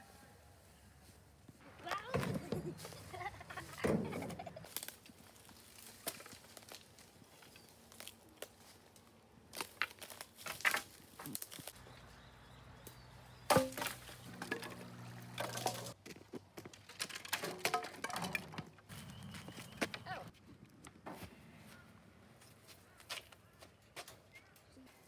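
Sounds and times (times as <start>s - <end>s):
dry sticks cracking and rustling: 4.7s - 11.8s, 12.8s - 16.0s.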